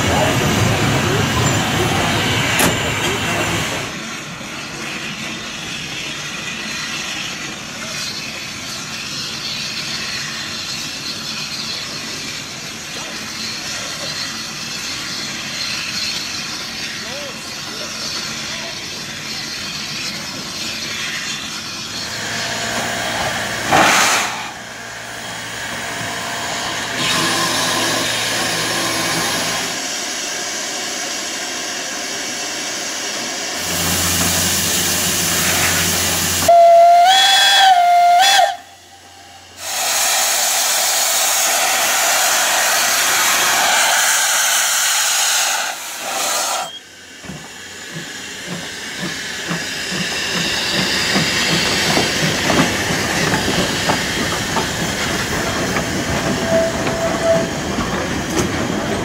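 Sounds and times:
loud hiss of steam: 0:00.0 - 0:59.0
train running noise: 0:00.0 - 0:59.0
steam locomotive whistle: 0:36.4 - 0:40.9, 0:56.4 - 0:57.6.

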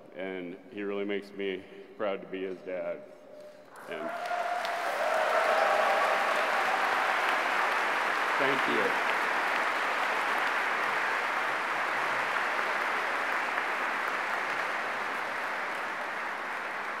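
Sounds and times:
audience applauding: 0:03.8 - 0:17.0.

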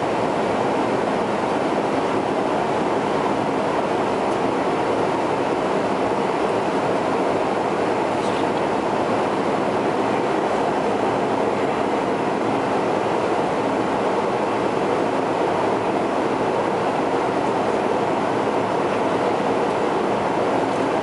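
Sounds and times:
airliner cabin roar: 0:00.0 - 0:21.0.

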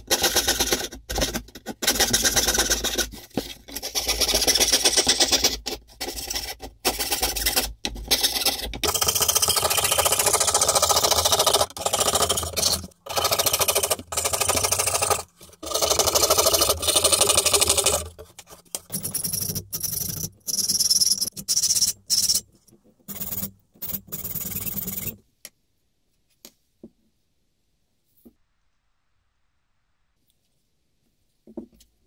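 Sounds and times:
file rasping on wood: 0:00.0 - 0:21.3
saw cutting thin wooden board: 0:00.1 - 0:18.6.

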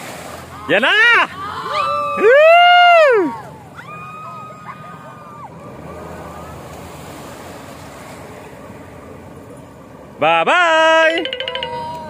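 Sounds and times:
water splashing: 0:00.0 - 0:02.2, 0:03.4 - 0:10.2
outboard motor running: 0:03.2 - 0:12.0.

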